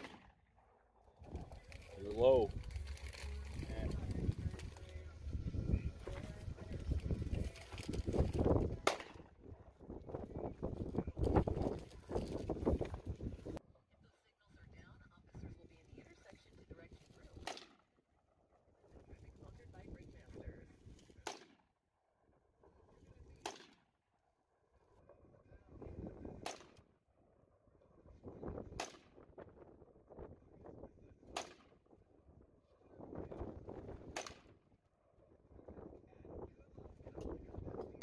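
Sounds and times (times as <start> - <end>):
gunshots: 0.0 - 0.3, 8.8 - 9.3
wind buffeting microphone: 1.2 - 13.6, 35.3 - 38.0.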